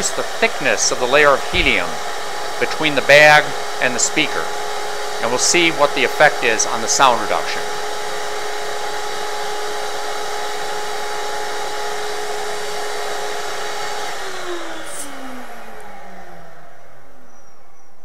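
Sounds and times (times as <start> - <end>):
vacuum motor whine: 0.0 - 18.0.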